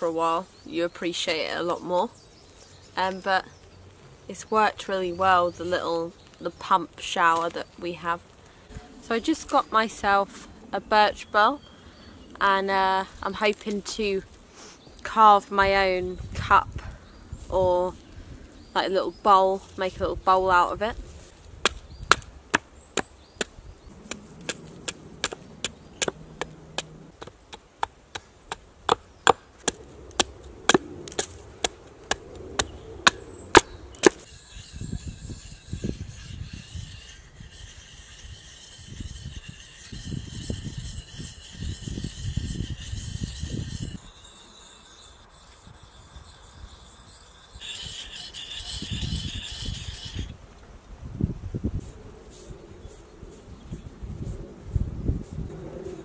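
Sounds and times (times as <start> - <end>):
hatchet chopping wood: 21.6 - 34.3
whetstone scraping axe edge: 24.1 - 27.1, 28.9 - 50.4.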